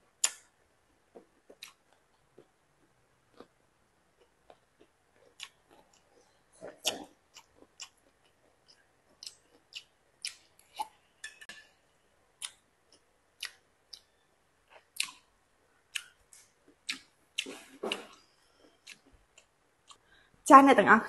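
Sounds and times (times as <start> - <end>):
wet mouth clicks: 0.2 - 0.4, 16.0 - 16.2
chewing crunches: 3.3 - 3.6, 4.2 - 10.9.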